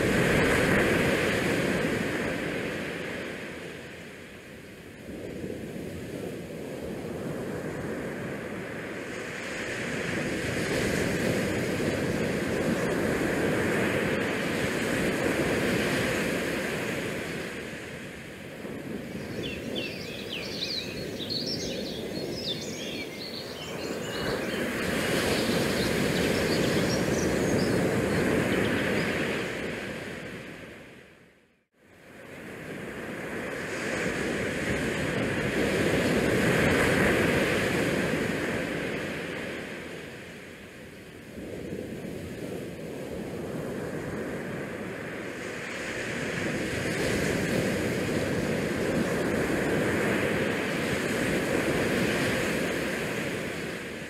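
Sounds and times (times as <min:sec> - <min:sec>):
sea noise: 0:00.0 - 0:31.3, 0:31.9 - 0:54.0
wind buffeting microphone: 0:05.0 - 0:30.8.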